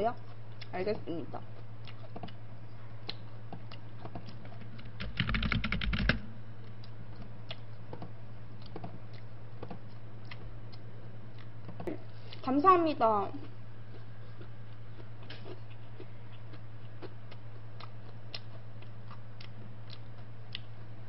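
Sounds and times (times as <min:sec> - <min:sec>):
computer keyboard typing: 0:04.8 - 0:06.2.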